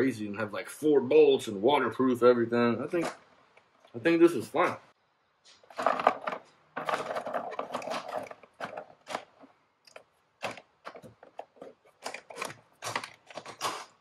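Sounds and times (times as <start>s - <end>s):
cable rustling: 5.5s - 14.0s
clattering against plastic case: 5.7s - 14.0s.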